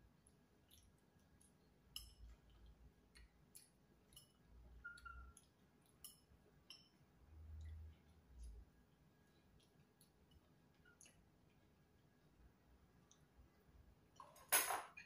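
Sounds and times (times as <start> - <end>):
cutlery clinking on dishes: 6.0 - 7.0, 14.2 - 15.0.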